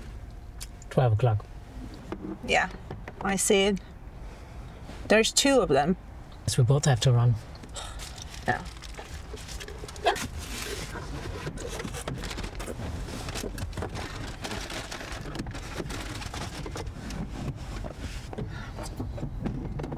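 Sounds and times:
paper wrappers rustling: 0:07.8 - 0:16.9.

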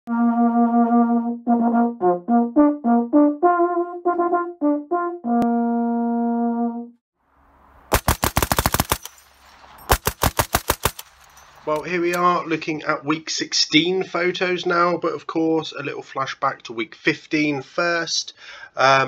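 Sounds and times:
brass instrument call: 0:00.1 - 0:07.0
machine gun burst: 0:07.9 - 0:11.7.

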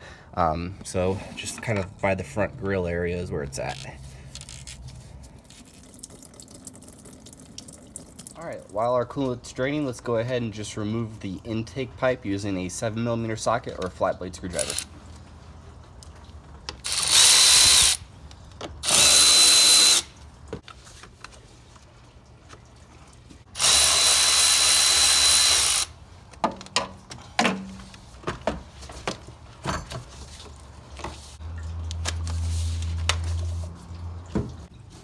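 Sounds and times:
power ratchet motor whine: 0:14.6 - 0:14.9, 0:16.8 - 0:18.0, 0:18.8 - 0:20.1, 0:23.6 - 0:26.0.

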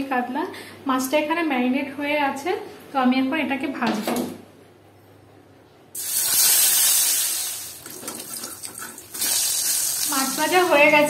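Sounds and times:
fish sizzling in hot oil: 0:06.0 - 0:11.0.

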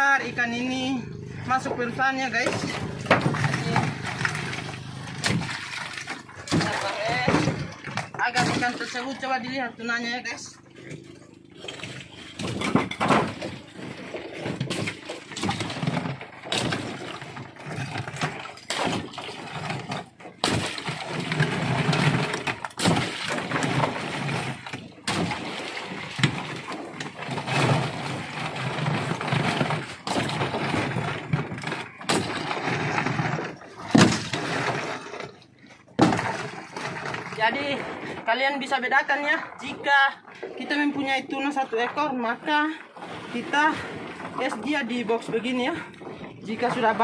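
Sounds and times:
water sloshing: 0:00.0 - 0:47.0
ice cracking and clattering: 0:02.4 - 0:09.4, 0:12.0 - 0:39.7.

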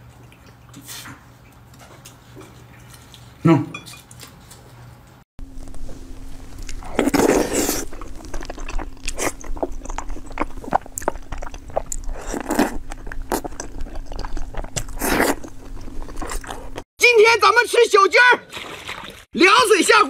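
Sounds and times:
person chewing: 0:05.4 - 0:16.9.

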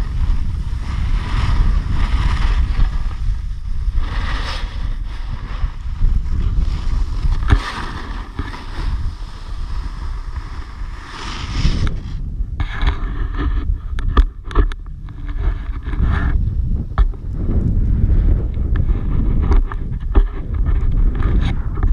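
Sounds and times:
snowboard sliding across snow: 0:00.0 - 0:14.0
wind rumbling on microphone: 0:00.0 - 0:21.9.

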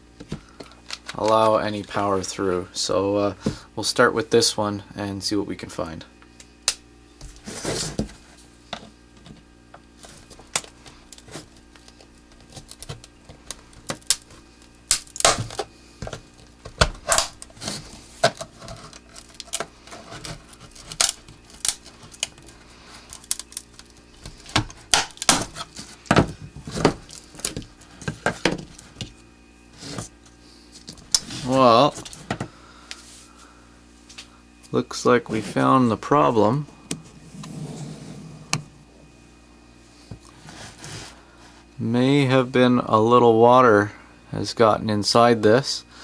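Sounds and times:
plastic case cracking: 0:10.2 - 0:29.1.

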